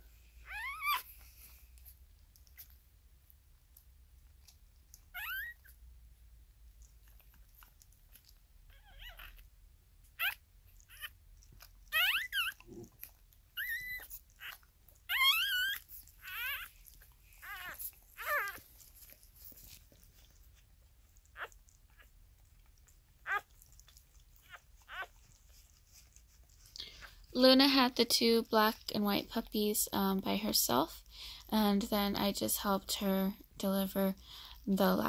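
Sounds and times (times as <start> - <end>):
puppies squealing: 0.4 - 1.1, 5.1 - 5.7, 8.7 - 9.4, 11.9 - 19.5, 23.2 - 23.6, 24.4 - 25.6.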